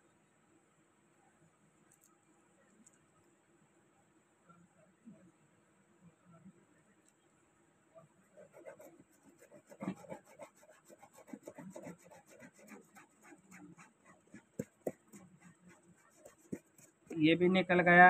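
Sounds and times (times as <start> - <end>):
plastic applicator scrubbing cloth: 8.4 - 17.2.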